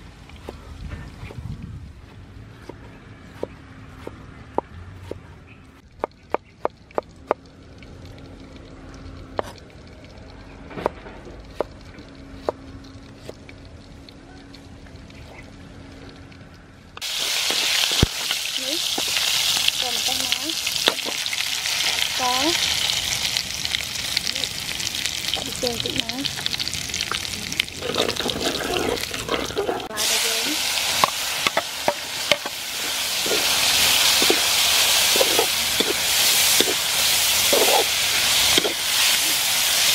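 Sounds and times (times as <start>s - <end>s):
peppers sizzling in hot oil: 17.0s - 39.9s
metal spatula scraping pan: 35.1s - 36.8s.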